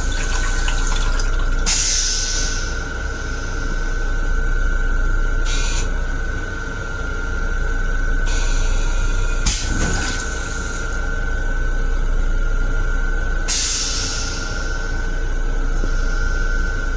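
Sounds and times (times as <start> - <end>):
toilet flushing water rush: 0.0 - 2.4
railcar whine: 0.0 - 9.7, 10.3 - 16.9.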